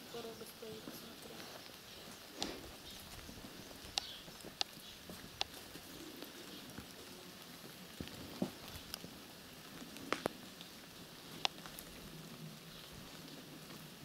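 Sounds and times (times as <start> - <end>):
steady outdoor hiss: 0.0 - 14.0
light clicks and taps: 2.4 - 5.8.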